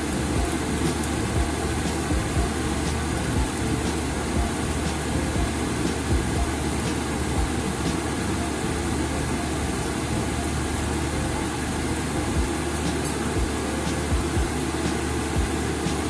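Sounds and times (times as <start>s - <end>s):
machine hum and hiss: 0.0s - 16.0s
soft low thumps: 0.4s - 3.6s, 5.4s - 6.7s, 15.4s - 15.6s.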